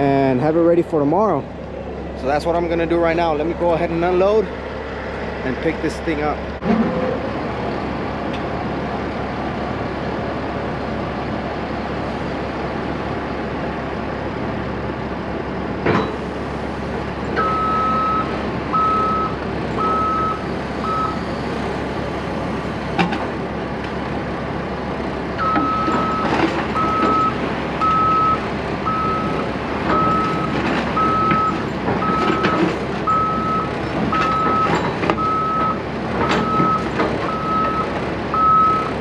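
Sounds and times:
diesel engine running: 0.0s - 39.0s
travel alarm beeping: 17.4s - 21.4s, 25.4s - 38.9s.

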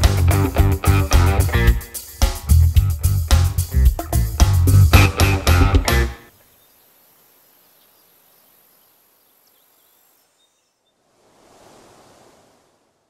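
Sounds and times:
faint steady hiss: 0.0s - 13.0s
faint high chirps: 6.2s - 11.0s
soft swell of noise: 11.0s - 13.0s.

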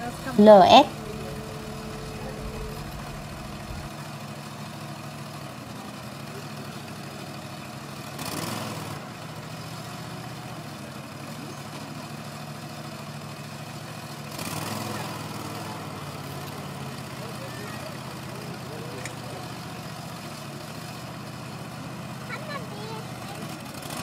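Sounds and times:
tractor diesel engine running: 0.0s - 24.0s
rush of noise: 0.2s - 4.1s.

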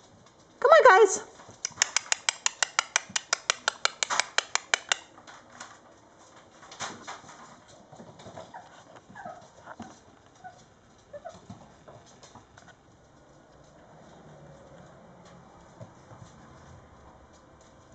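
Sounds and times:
light taps: 1.6s - 5.1s
rapid sharp clicks: 1.6s - 5.1s
puppy whimpers: 8.5s - 11.4s.

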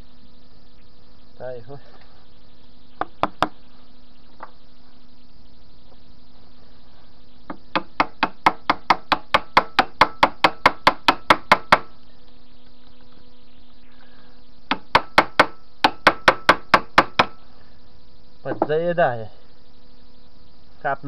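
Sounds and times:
sharp metal knocks: 7.5s - 11.9s, 14.7s - 17.4s.

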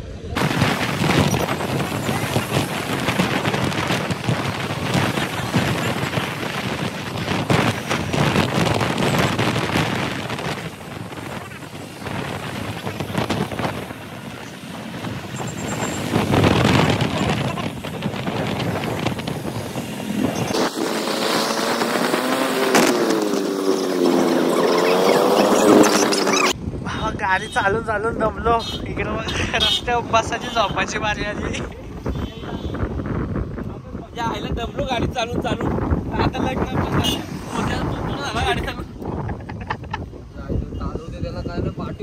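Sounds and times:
wind buffeting microphone: 0.0s - 42.0s
motorcycle engine: 0.4s - 26.6s.

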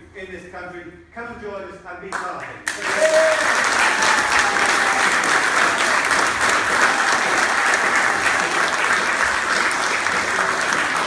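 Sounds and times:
audience applause: 2.6s - 11.0s.

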